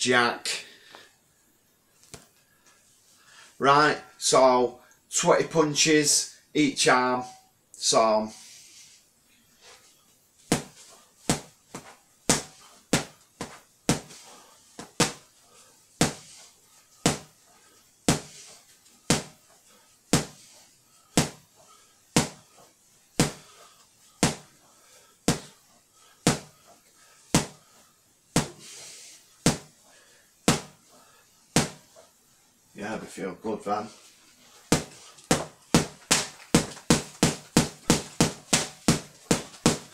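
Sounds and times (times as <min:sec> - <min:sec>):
gloves punching a punch bag: 0:10.5 - 0:14.2, 0:14.8 - 0:15.3, 0:16.0 - 0:16.4, 0:17.0 - 0:17.4, 0:18.1 - 0:19.5, 0:20.1 - 0:20.5, 0:21.1 - 0:21.5, 0:22.2 - 0:22.5, 0:23.2 - 0:23.6, 0:24.2 - 0:24.6, 0:25.2 - 0:25.6, 0:26.2 - 0:26.6, 0:27.3 - 0:27.7, 0:28.4 - 0:28.7, 0:29.4 - 0:29.8, 0:30.4 - 0:30.8, 0:31.5 - 0:32.0, 0:34.7 - 0:39.9.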